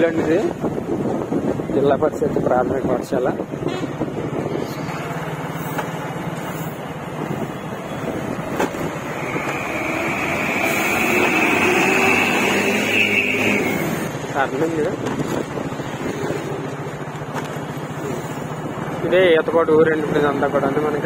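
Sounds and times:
car engine with road noise: 0.0 - 21.0.

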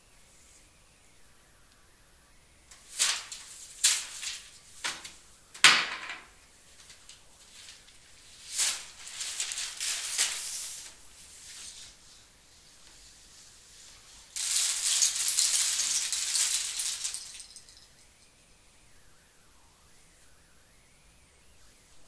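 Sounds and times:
short hissy rustling: 2.7 - 5.3, 6.5 - 17.9.

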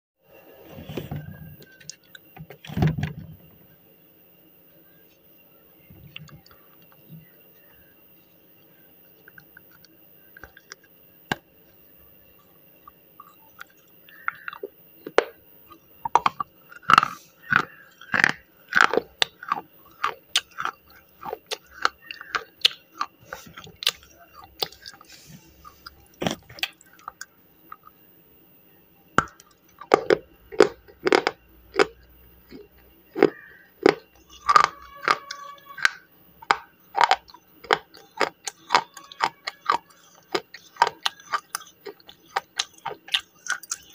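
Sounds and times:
pencil being chewed crunching: 12.8 - 27.9, 29.2 - 43.9.

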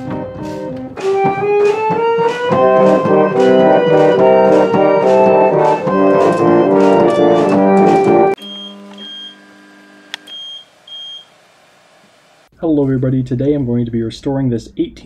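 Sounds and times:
reed pump organ chords: 0.0 - 8.9.

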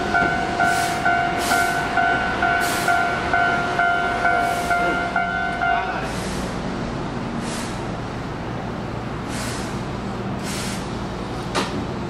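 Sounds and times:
train equipment humming: 0.0 - 12.0
short air hisses: 9.3 - 9.8, 10.4 - 10.9.

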